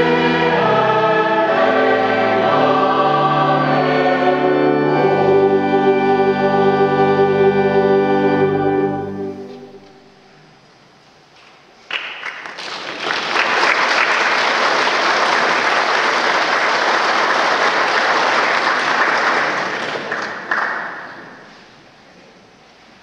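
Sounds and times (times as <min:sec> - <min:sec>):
audience applauding: 0:11.9 - 0:21.4.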